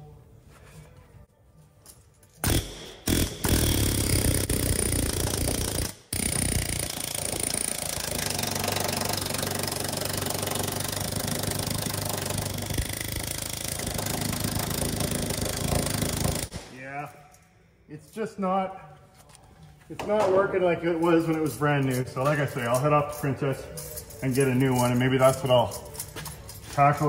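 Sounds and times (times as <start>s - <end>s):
needle scaler hammering on metal: 2.4s - 16.7s.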